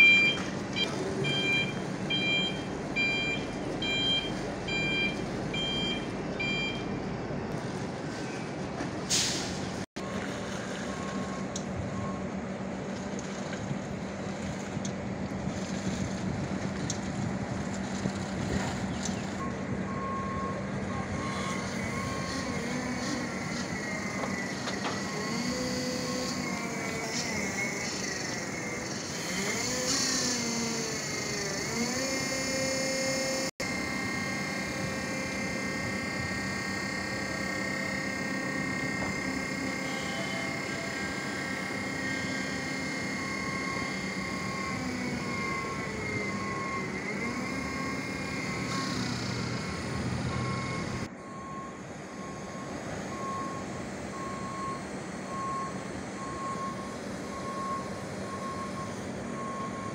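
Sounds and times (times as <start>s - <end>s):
forklift warning beeps: 0.0s - 7.1s, 10.0s - 12.4s, 19.4s - 28.6s, 32.3s - 59.9s
forklift electric motor whining: 20.9s - 59.9s.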